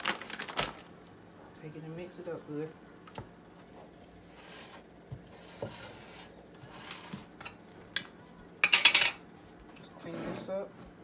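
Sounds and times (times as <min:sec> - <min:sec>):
wooden spoon stirring in bowl: 0:03.5 - 0:07.4.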